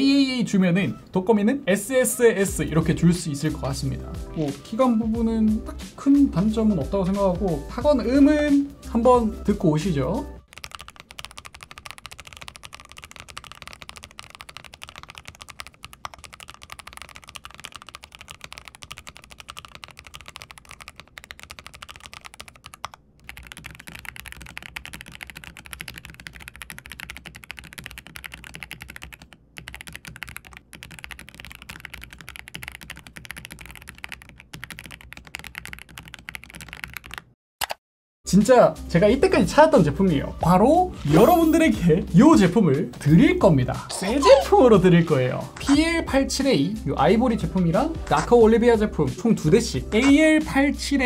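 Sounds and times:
clacky mechanical keyboard typing: 10.4 - 37.8
mechanical keyboard typing: 10.4 - 37.8.

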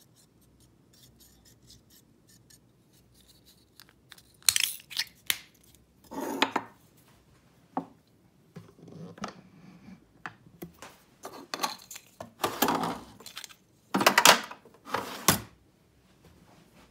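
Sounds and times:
metal drawer sliding with clatter: 12.4 - 13.2, 14.8 - 15.5.

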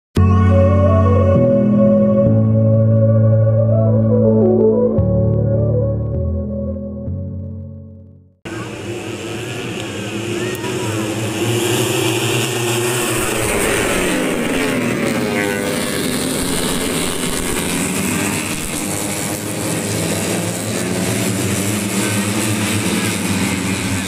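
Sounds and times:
motorcycles passing at high revs: 8.5 - 24.0.

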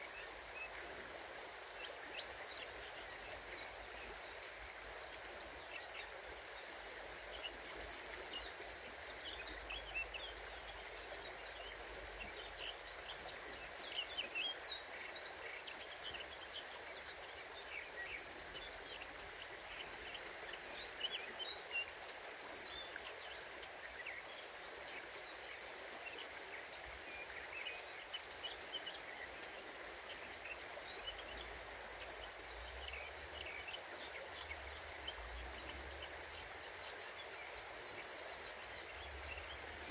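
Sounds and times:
river water flowing: 0.0 - 39.9
songbirds chirping: 0.0 - 39.9.

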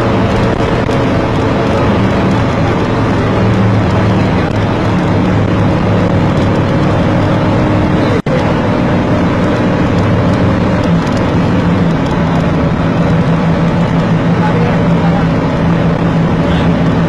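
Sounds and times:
road and wind noise: 0.0 - 17.0
vehicle engine hum: 0.0 - 17.0.

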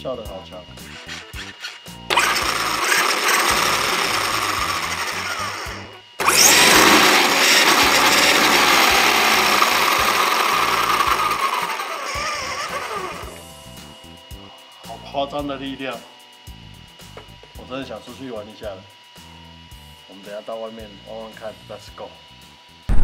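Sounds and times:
electric motor whirring whine: 0.0 - 14.8.

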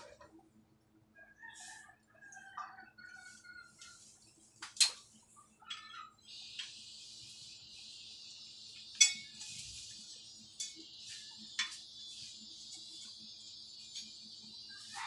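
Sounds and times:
steady high-pitched hiss: 3.0 - 15.0
steel plates clinking: 8.8 - 12.0.

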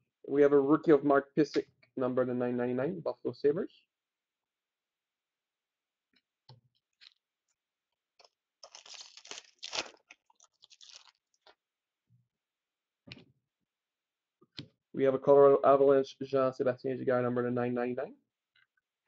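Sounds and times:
card pack wrapper tearing and crinkling: 8.6 - 11.3.

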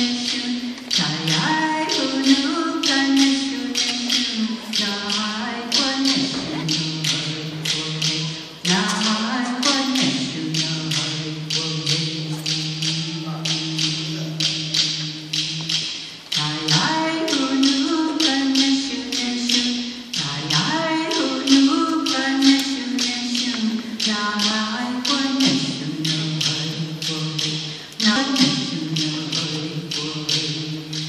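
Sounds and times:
steady percussion beat: 0.0 - 31.0
person chanting in held notes: 3.2 - 17.6.

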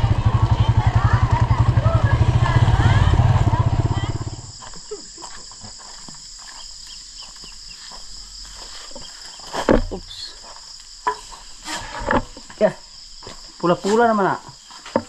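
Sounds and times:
engine: 0.0 - 4.5
crickets and insects chirring: 0.0 - 15.0.

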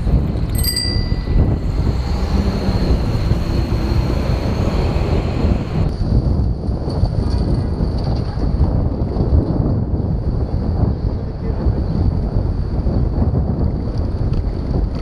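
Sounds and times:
traffic rumble: 0.0 - 8.6
wind noise on microphone: 0.0 - 15.0
bell-like ding: 0.6 - 1.7.

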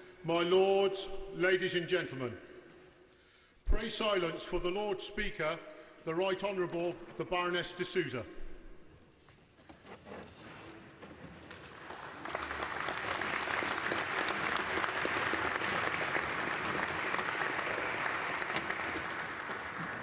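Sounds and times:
large audience applauding: 11.5 - 20.0.

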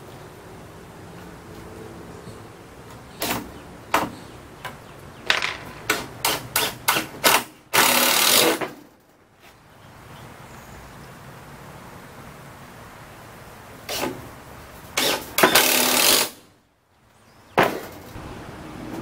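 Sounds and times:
power drill driving screws: 6.2 - 8.7, 15.0 - 16.4.

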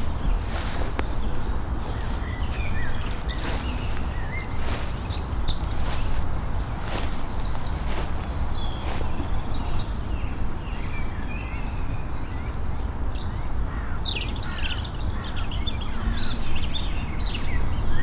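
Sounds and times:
footsteps in grass: 0.0 - 10.8
birds chirping and singing: 0.0 - 18.0.

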